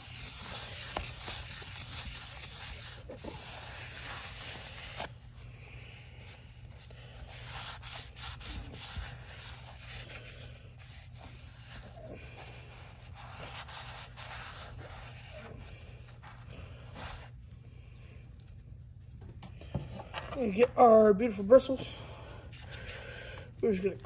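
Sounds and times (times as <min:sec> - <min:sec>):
paper towel rubbing on metal: 0:00.0 - 0:17.4.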